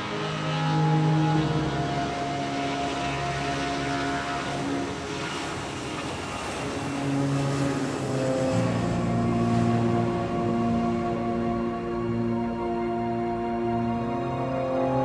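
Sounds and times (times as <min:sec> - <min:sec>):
jet airliner rolling on runway: 0:00.0 - 0:11.6
background music with held chords: 0:00.0 - 0:15.0.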